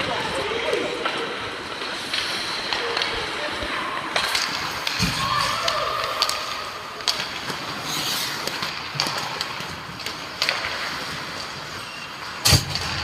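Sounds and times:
hockey sticks and puck clacking: 0.0 - 13.0
skates scraping ice: 0.0 - 13.0
distant shouts: 5.1 - 7.0.

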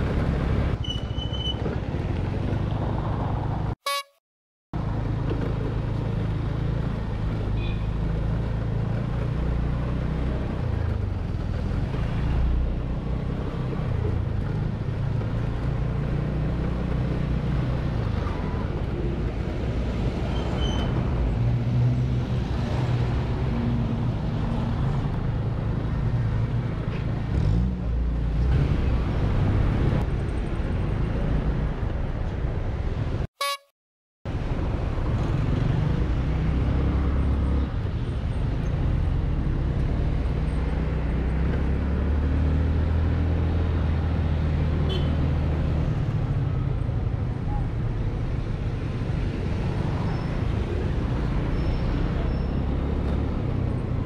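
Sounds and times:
road noise: 0.0 - 4.2, 4.8 - 33.7, 34.3 - 54.0.

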